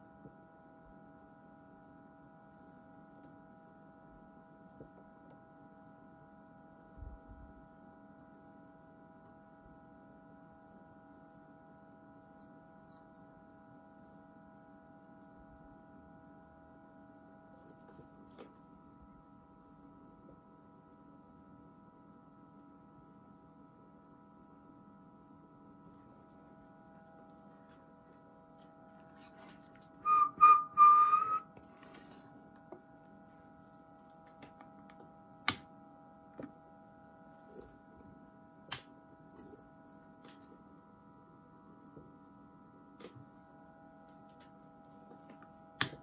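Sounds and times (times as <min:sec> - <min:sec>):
faint steady hum: 0:00.0 - 0:46.0
short whistle: 0:30.0 - 0:31.5.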